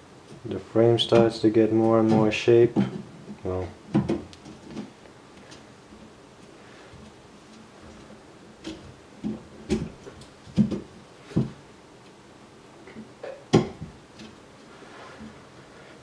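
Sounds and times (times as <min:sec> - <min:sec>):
knocks on metal and plastic frame: 0:03.9 - 0:04.9.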